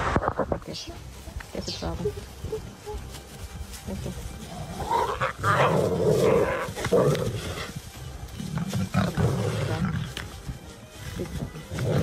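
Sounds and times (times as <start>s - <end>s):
lion growling: 4.5s - 7.8s, 8.4s - 10.2s, 11.7s - 12.0s.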